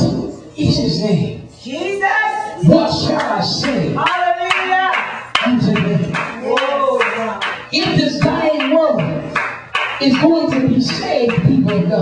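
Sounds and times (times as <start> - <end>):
man preaching into a microphone: 0.0 - 12.0
hand-clapping: 3.2 - 11.9.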